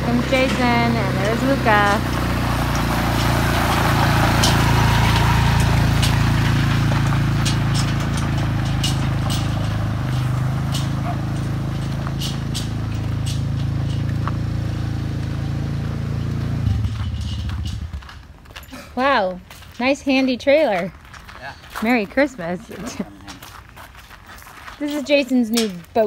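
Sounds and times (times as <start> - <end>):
quad engine running: 0.0 - 18.3
trailer over gravel: 0.0 - 26.0.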